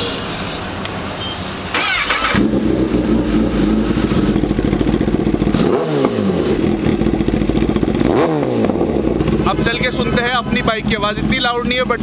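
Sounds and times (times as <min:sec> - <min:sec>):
motorcycle engine idling: 0:02.2 - 0:05.6, 0:06.4 - 0:12.0.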